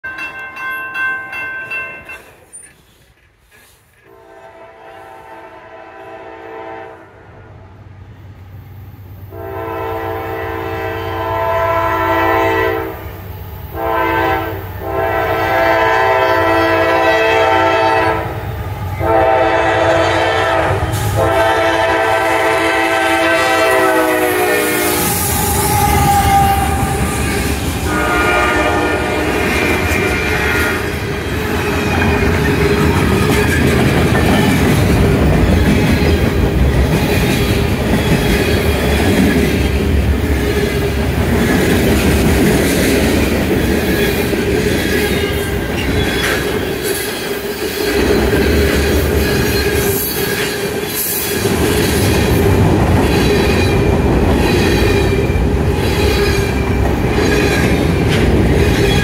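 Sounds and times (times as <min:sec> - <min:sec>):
crossing bell ringing: 0:00.0 - 0:03.0
train rumbling past: 0:00.0 - 0:59.0
locomotive air horn blasts: 0:04.1 - 0:07.2, 0:09.3 - 0:13.1, 0:13.8 - 0:18.4, 0:19.0 - 0:30.9.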